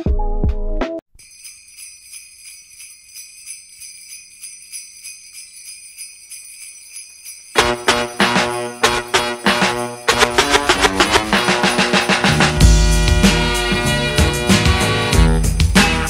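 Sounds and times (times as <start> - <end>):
music: 0.0 - 1.0, 1.7 - 16.0
sleigh bells shaken: 1.1 - 16.0
hip-hop beat with heavy bass: 7.6 - 16.0.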